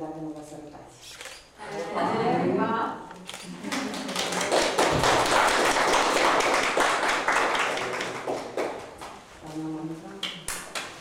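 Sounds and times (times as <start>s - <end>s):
crowd applauding: 3.6s - 9.2s.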